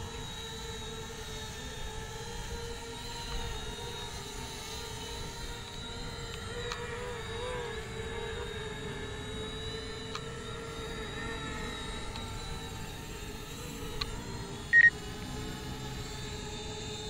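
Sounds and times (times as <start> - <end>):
drone propellers whining: 0.0 - 17.0
loud high beep: 14.7 - 14.9.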